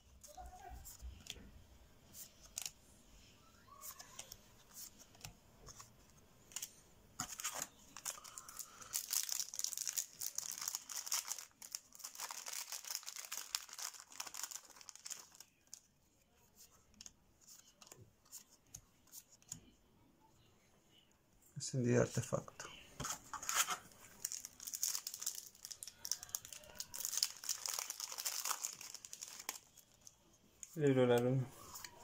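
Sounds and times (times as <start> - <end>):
foil wrapper tearing and crinkling: 8.0 - 15.8, 23.4 - 29.9.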